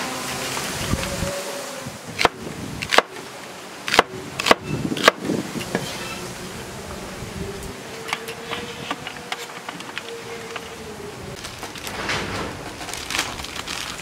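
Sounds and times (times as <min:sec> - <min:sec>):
cleaver chopping on wooden board: 0:03.9 - 0:05.2.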